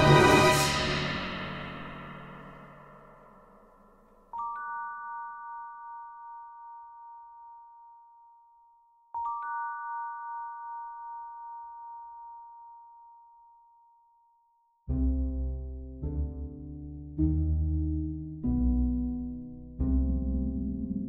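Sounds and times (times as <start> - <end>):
bell-like mallet percussion: 4.3 - 8.6, 9.2 - 14.0.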